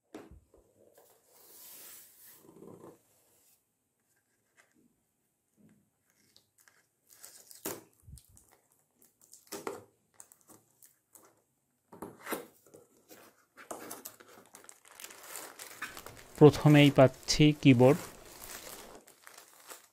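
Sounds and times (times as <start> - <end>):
cardboard and packaging rustling: 12.4 - 19.9
cardboard tearing: 13.8 - 19.9.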